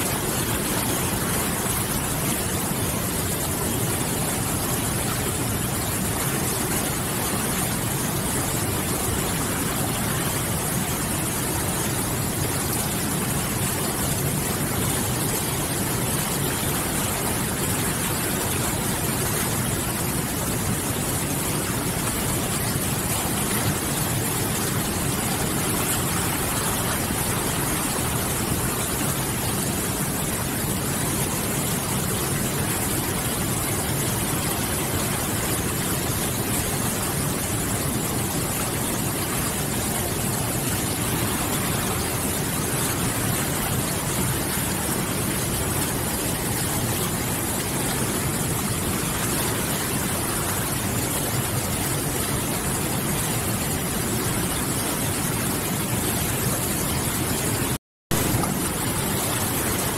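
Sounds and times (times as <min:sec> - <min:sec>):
river rapids rushing: 0:16.8 - 0:59.9.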